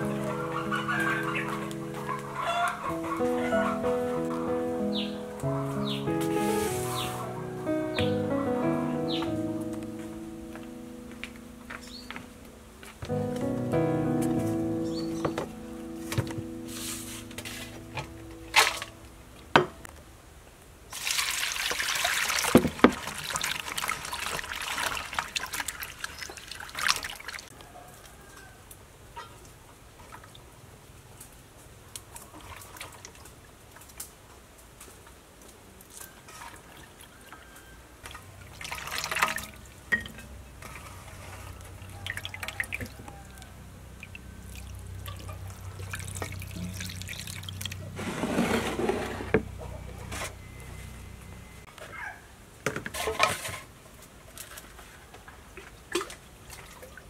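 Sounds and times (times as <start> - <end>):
water pouring and splashing: 6.2 - 7.3, 16.0 - 19.1, 20.9 - 27.6, 29.4 - 30.6, 32.0 - 49.4, 52.9 - 57.0
water poured onto plate: 20.9 - 27.5, 38.5 - 40.2, 44.1 - 47.9
water trickling: 20.9 - 27.5, 36.0 - 40.8, 41.5 - 48.0.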